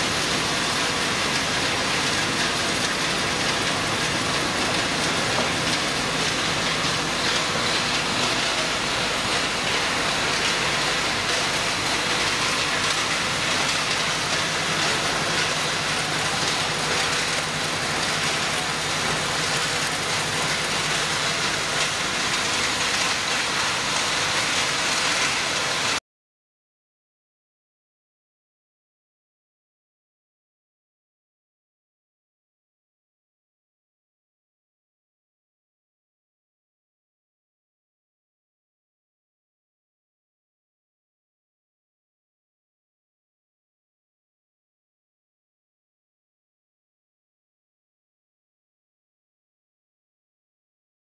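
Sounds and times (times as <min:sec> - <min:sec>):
low machine hum: 0:00.0 - 0:26.0.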